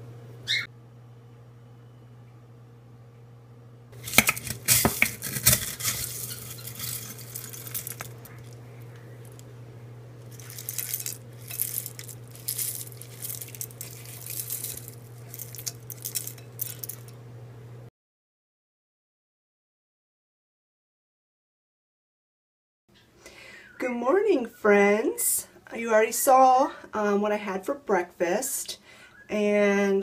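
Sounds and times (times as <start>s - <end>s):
steady low hum: 0.0s - 17.9s
granola poured into bowl: 4.0s - 8.6s, 10.3s - 17.1s.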